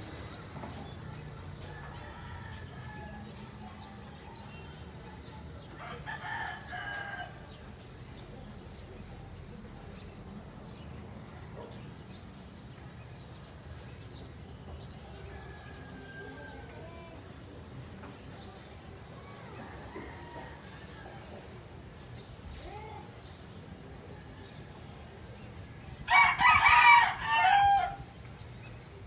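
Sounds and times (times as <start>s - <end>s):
low background noise: 0.0s - 29.0s
rooster crowing: 26.1s - 28.0s.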